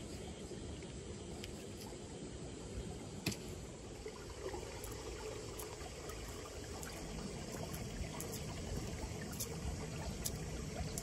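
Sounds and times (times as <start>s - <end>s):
water trickling in channel: 3.6s - 11.0s.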